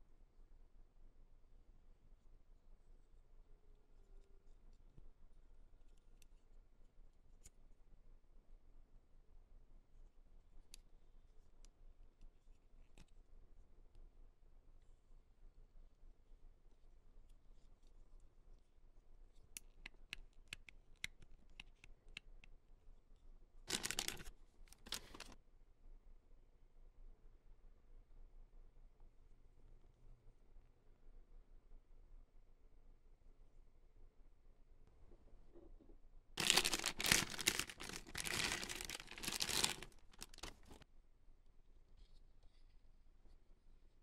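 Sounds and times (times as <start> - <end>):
packaging tearing: 23.7 - 25.4, 36.4 - 40.8
packaging clicks and taps: 36.4 - 40.8.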